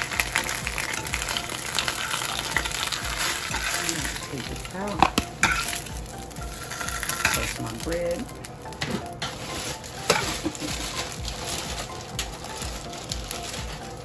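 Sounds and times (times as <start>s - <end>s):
slices sizzling in a skillet: 0.0s - 8.6s
metal fork scraping a pan: 2.0s - 3.9s, 5.0s - 5.9s, 6.5s - 7.6s.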